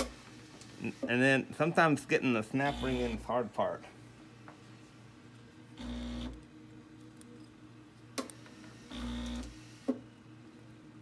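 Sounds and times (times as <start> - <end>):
short steady hums: 5.8 - 6.5.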